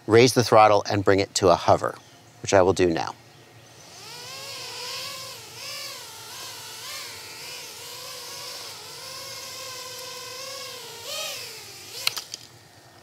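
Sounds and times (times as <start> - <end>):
quadcopter motors whining: 3.4 - 13.0.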